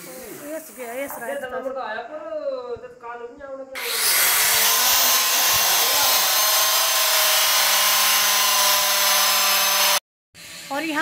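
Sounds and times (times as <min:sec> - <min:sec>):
electric cutting tool whining: 0:03.8 - 0:11.0.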